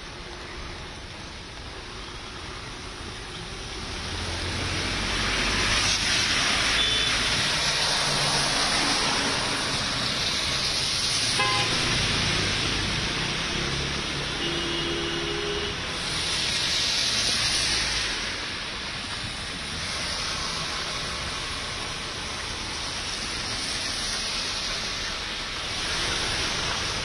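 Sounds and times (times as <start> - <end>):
tyres hissing on wet road: 0.0 - 27.0
vehicle horn toot: 11.4 - 11.9, 14.4 - 15.7.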